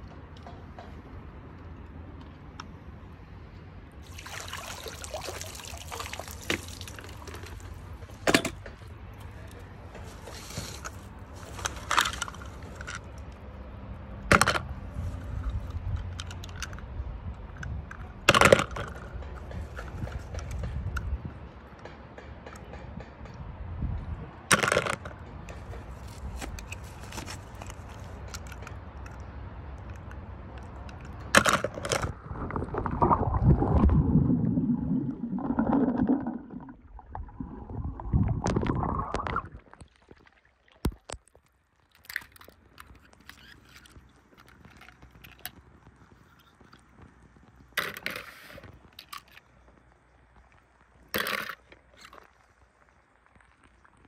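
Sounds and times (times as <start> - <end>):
splashes: 4.0 - 8.2, 31.6 - 42.5
water sloshing and gurgling: 4.0 - 13.5, 30.6 - 45.4.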